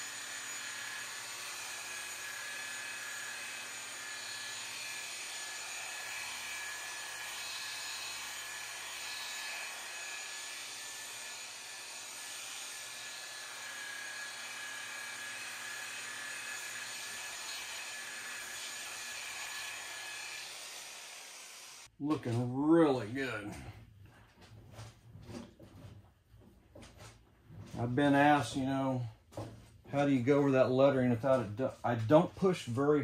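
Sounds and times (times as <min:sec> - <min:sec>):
rotary polisher motor whine: 0:00.0 - 0:21.9.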